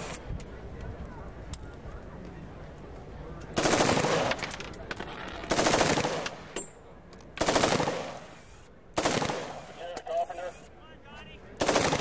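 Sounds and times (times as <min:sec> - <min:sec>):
automatic gunfire bursts: 0:03.6 - 0:04.4, 0:05.5 - 0:06.3, 0:07.4 - 0:08.2, 0:09.0 - 0:09.6, 0:11.6 - 0:12.0.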